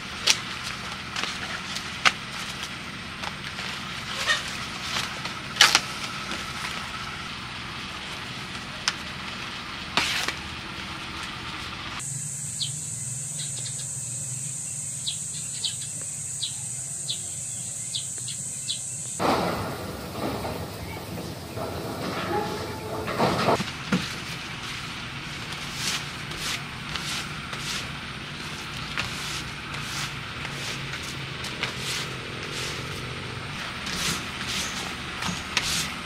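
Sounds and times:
banana leaves rustling: 0:00.0 - 0:12.0, 0:19.2 - 0:36.0
high-pitched insect drone: 0:12.0 - 0:19.2.

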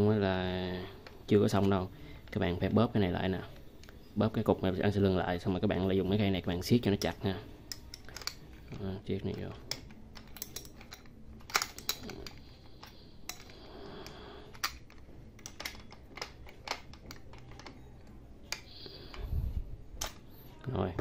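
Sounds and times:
spanner clicking on metal nut: 0:09.7 - 0:13.5.

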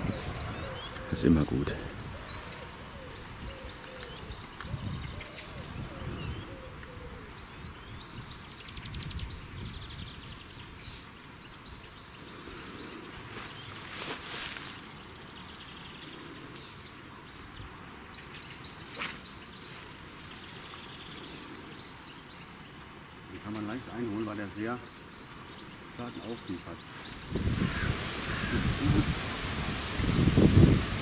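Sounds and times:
small birds chirping: 0:00.0 - 0:31.0
loud rushing noise: 0:27.2 - 0:31.0.

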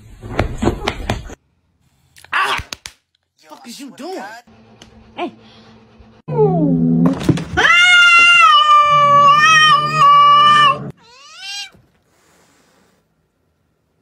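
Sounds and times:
cat yowling: 0:07.6 - 0:11.8.

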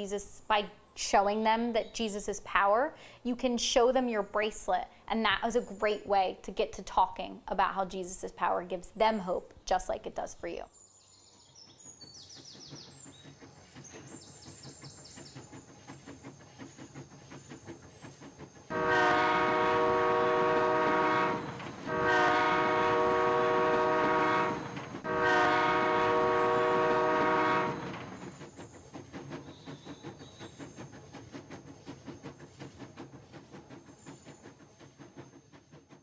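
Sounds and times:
train wheels clacking: 0:11.6 - 0:36.0
multi-tone train whistle: 0:18.7 - 0:28.1.

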